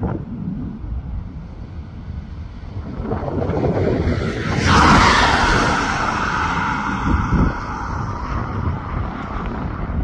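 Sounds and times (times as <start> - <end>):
wind buffeting microphone: 0.0 - 10.0
jet engines whining: 2.7 - 9.5.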